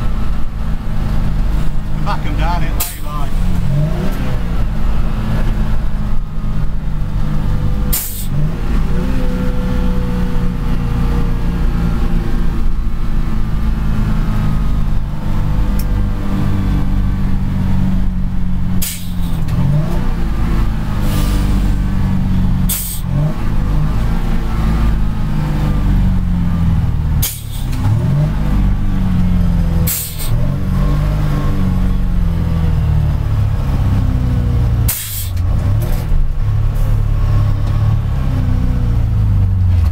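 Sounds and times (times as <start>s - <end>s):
diesel lorry engine: 0.0s - 39.9s
gear change clunk: 34.8s - 37.0s, 39.6s - 39.9s.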